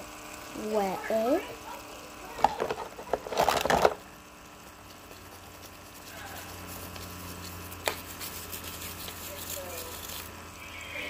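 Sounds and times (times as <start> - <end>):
wet rubbing and handling: 4.6 - 10.4.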